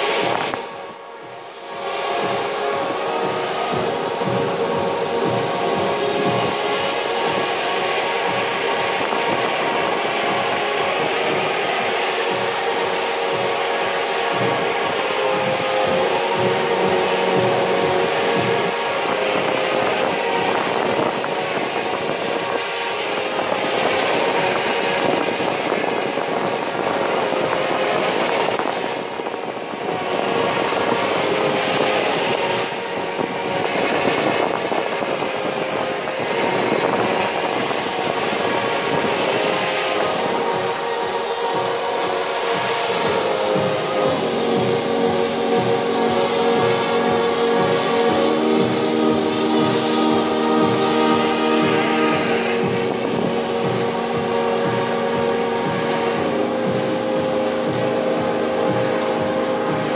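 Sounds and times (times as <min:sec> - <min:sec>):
drones buzzing: 0:00.0 - 0:59.9.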